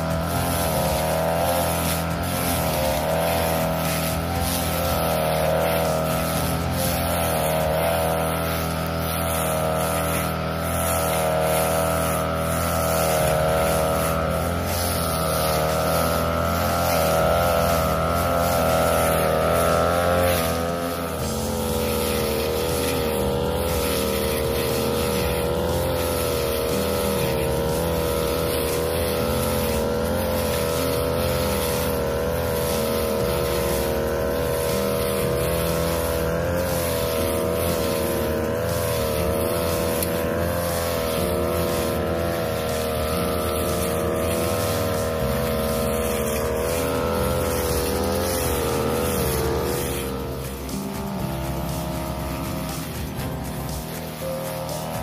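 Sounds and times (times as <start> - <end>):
blade cutting through grass: 0.0 - 55.0
brush cutter engine running: 0.0 - 55.0.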